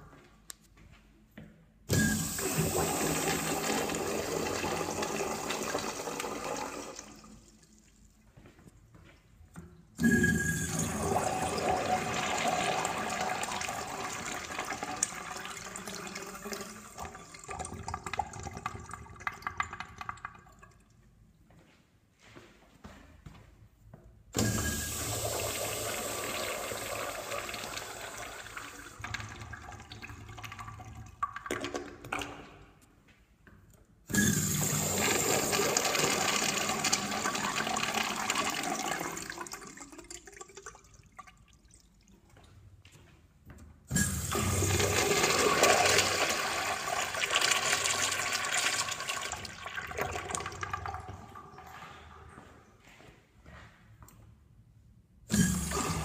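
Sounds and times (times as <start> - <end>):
urinals flushing: 1.9 - 8.1, 9.9 - 20.8, 24.4 - 32.6, 34.1 - 42.3, 43.9 - 52.6, 55.3 - 56.0.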